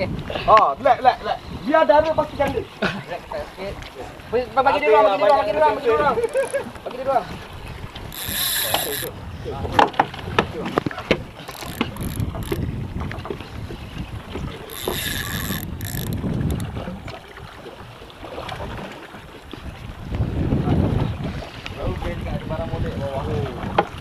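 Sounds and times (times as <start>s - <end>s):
sea water rumbling around boat: 0.0s - 24.0s
wind buffeting microphone: 0.0s - 24.0s
sharp knocks and clicks: 9.8s - 13.4s.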